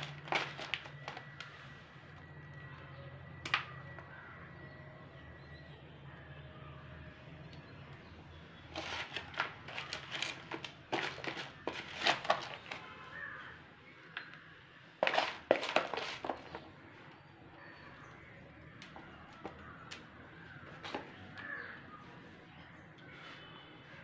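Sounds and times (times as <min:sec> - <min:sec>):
soil crunching and crackling: 0:00.0 - 0:01.8, 0:08.6 - 0:13.5, 0:15.0 - 0:21.8.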